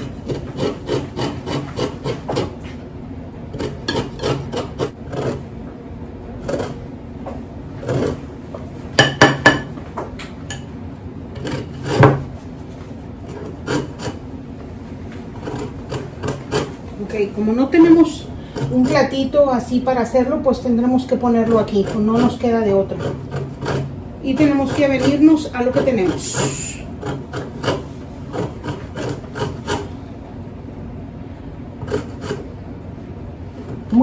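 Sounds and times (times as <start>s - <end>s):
lemon peel rasped on grater: 0.0s - 2.6s, 21.4s - 30.0s.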